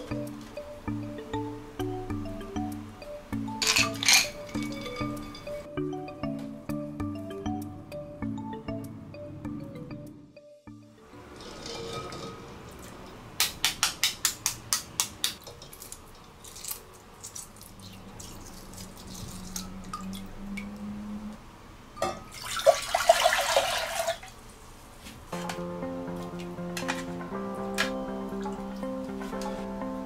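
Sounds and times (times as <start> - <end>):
liquid pouring into saucepan: 22.3 - 24.2.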